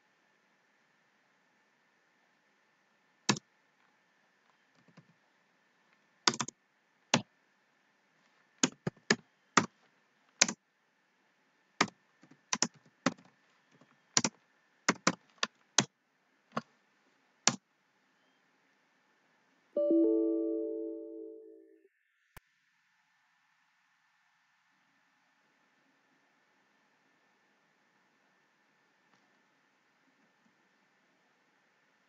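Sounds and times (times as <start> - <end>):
keyboard keys clicking: 6.3 - 6.5.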